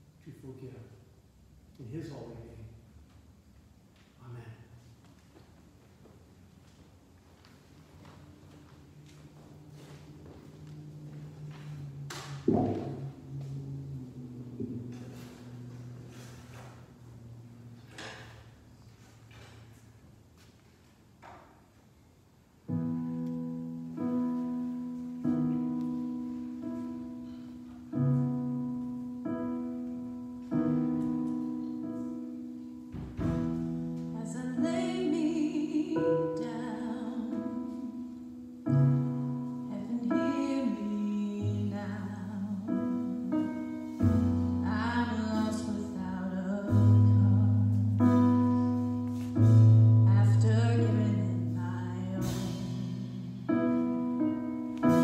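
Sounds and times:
electric piano chords: 7.7 - 19.5, 22.6 - 55.0
deep bass notes: 10.2 - 18.0
person singing: 34.2 - 38.0.

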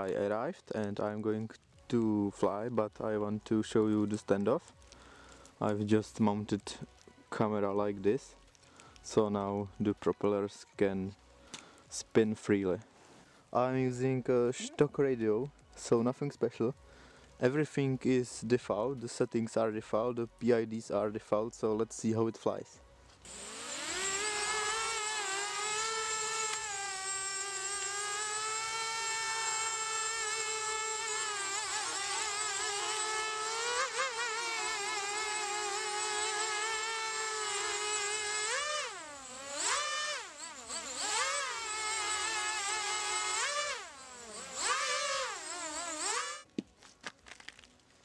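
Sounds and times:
quadcopter motors buzzing whine: 23.2 - 46.5.

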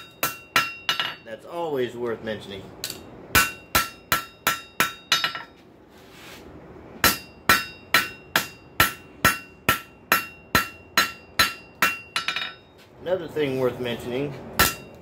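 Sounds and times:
hammer striking metal on anvil: 0.0 - 1.3, 2.8 - 5.6, 7.0 - 12.7, 14.6 - 15.0.

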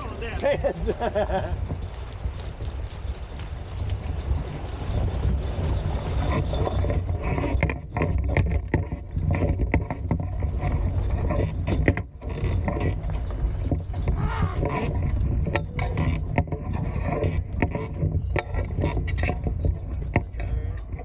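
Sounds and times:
water rushing: 0.0 - 7.6
water slapping against boat: 0.0 - 21.0
wind buffeting microphone: 0.0 - 21.0.

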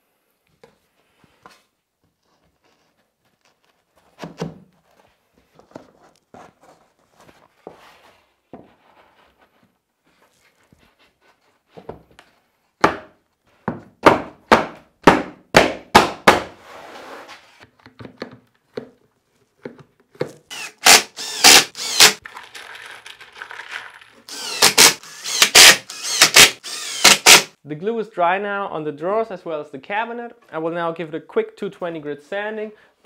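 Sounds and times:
cordless drill driving screws: 20.5 - 22.2, 24.3 - 27.5.

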